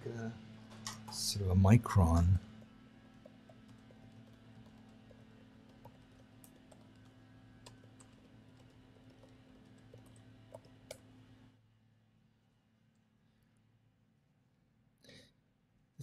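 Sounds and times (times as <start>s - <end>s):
faint room hum: 0.0s - 16.0s.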